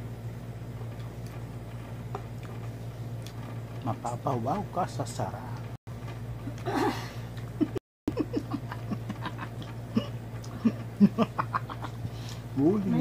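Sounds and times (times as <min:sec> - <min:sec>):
steady low hum: 0:00.0 - 0:13.0
man chewing and lip-smacking: 0:01.0 - 0:03.4.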